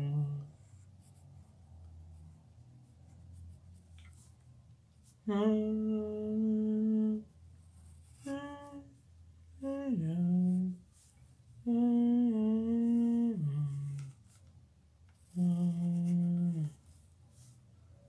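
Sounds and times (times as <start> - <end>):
person humming: 0.0 - 0.5, 5.3 - 7.3, 8.1 - 10.9, 11.6 - 14.2, 15.2 - 16.8.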